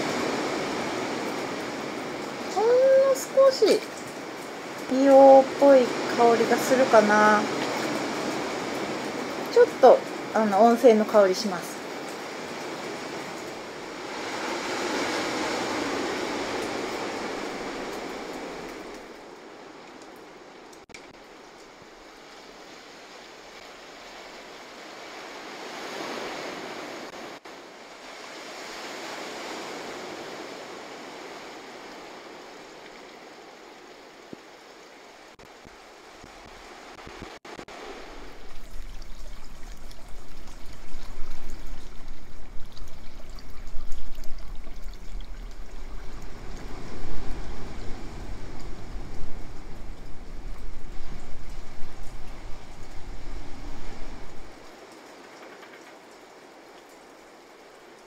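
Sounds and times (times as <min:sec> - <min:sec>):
surf breaking on rocks: 0:00.0 - 0:09.5, 0:11.8 - 0:19.2, 0:36.2 - 0:54.8.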